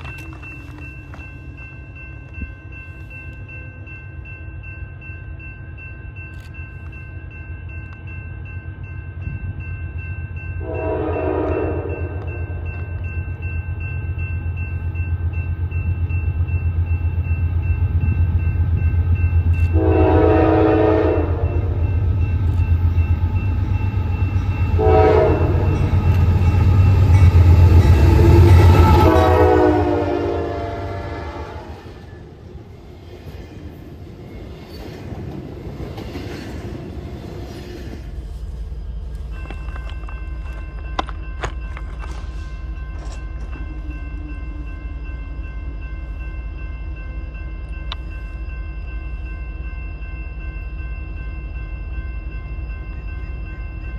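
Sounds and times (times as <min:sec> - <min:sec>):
diesel locomotive engine rumbling: 0:00.0 - 0:53.9
train air horn blasts: 0:10.6 - 0:12.3, 0:19.7 - 0:21.8, 0:24.8 - 0:25.8, 0:28.0 - 0:31.9
train wheels clicking on rails: 0:32.9 - 0:44.0.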